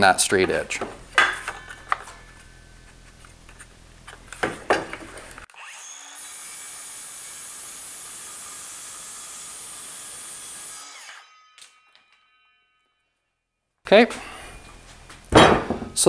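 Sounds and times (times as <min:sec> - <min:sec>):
circular saw cutting wood: 0:05.4 - 0:13.0.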